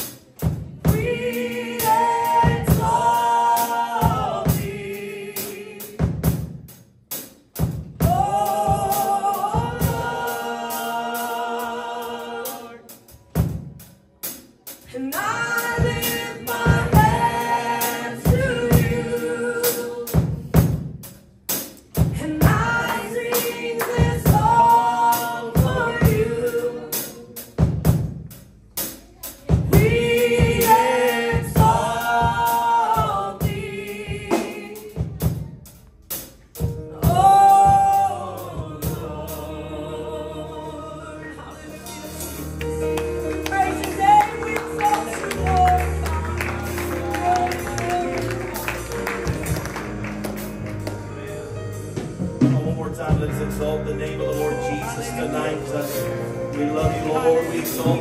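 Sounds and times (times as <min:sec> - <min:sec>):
voices singing worship music: 0:00.0 - 0:20.9, 0:21.5 - 0:27.9, 0:29.5 - 0:35.4, 0:36.1 - 0:58.0
steady drum beat: 0:00.0 - 0:58.0.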